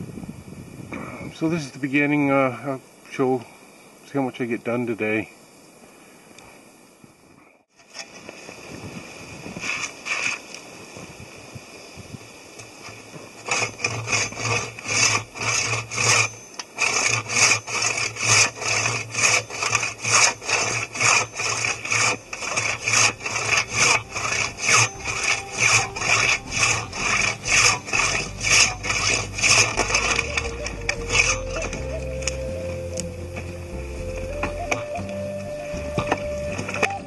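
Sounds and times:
pruning saw cutting log: 9.5s - 10.6s, 12.6s - 37.0s.

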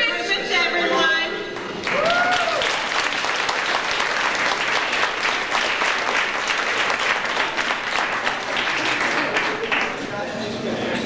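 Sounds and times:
audience applauding: 1.6s - 10.2s.

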